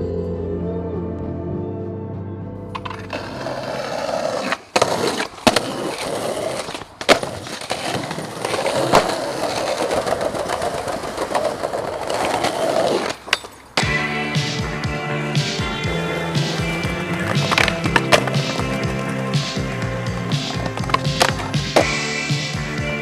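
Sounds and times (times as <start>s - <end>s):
music: 0.0s - 4.4s, 13.8s - 23.0s
skateboard tail clacks and landing: 2.7s - 14.0s, 14.6s - 22.0s
skateboard wheels rolling on tarmac: 2.7s - 23.0s.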